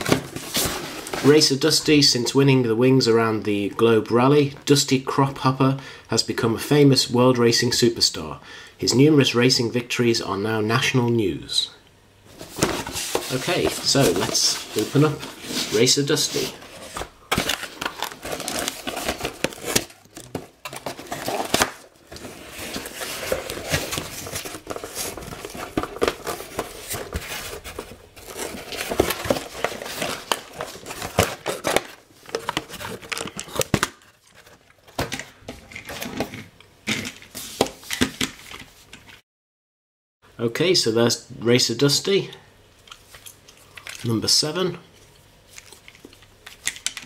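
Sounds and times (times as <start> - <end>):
packaging rustling: 0.0 - 1.5, 12.3 - 36.4
cardboard box tearing: 16.8 - 33.8.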